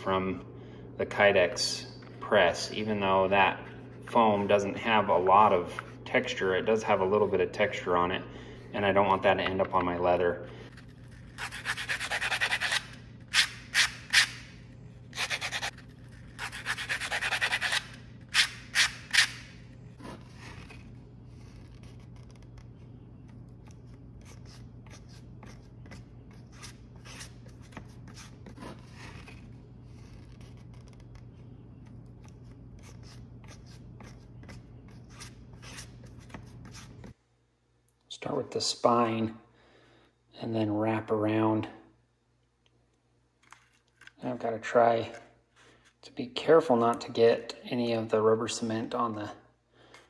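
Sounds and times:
sandpaper rubbing: 10.8s - 14.5s, 15.1s - 22.4s, 23.7s - 31.2s, 32.4s - 37.0s.

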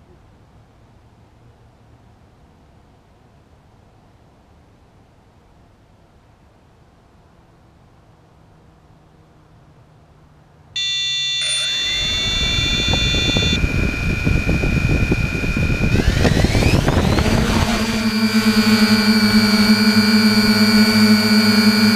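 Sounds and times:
drone motors whining: 10.8s - 21.9s
propeller rush: 11.9s - 21.9s.

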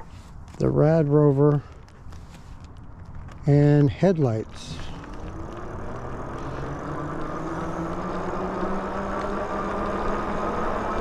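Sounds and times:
tyre and wind rumble: 0.0s - 11.0s
electric motor whining: 4.4s - 11.0s.

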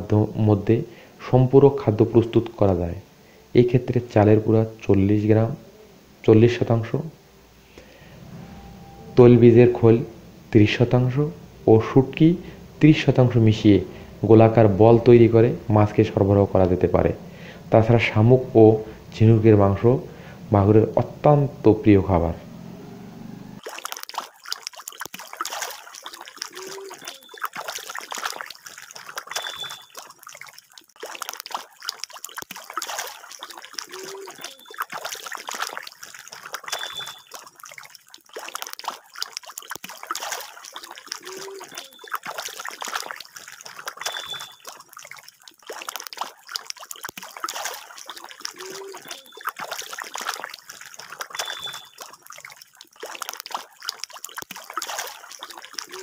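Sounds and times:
fish splashing water: 22.6s - 56.0s.

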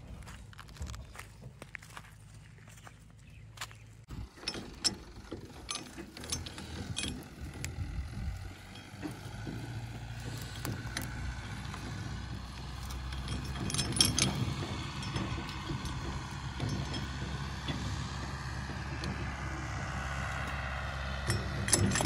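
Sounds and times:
pickup engine idling: 3.6s - 22.0s
heavy chain clinking and rattling: 4.2s - 19.9s, 21.1s - 22.0s.

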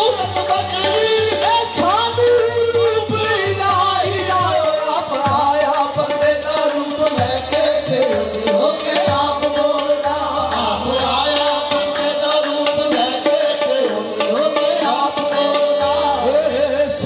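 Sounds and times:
harmonium melody: 0.0s - 17.0s
tabla beat: 0.0s - 17.0s.

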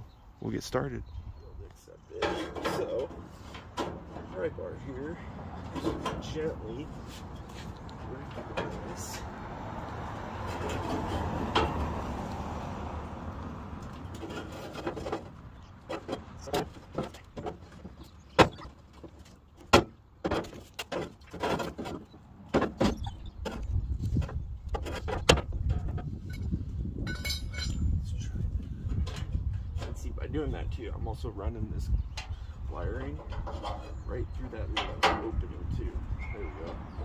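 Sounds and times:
metal clanks and knocks: 2.1s - 4.7s, 5.6s - 7.5s, 8.2s - 9.3s, 10.4s - 12.0s, 13.8s - 27.9s, 28.8s - 30.2s, 32.2s - 35.9s
pry bar scraping metal: 33.0s - 34.1s.

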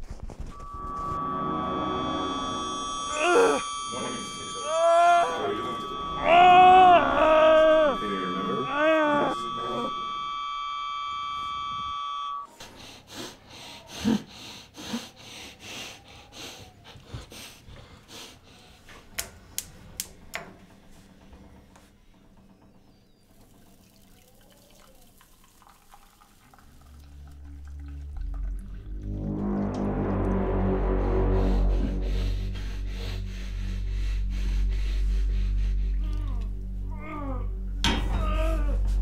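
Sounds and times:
high ringing tone: 0.4s - 12.5s
water trickling from kettle: 23.3s - 29.2s
low rumble: 27.0s - 39.0s.

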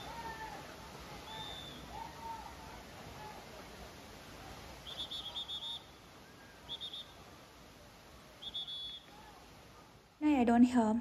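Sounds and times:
waterfall crashing onto rocks: 0.0s - 8.4s.

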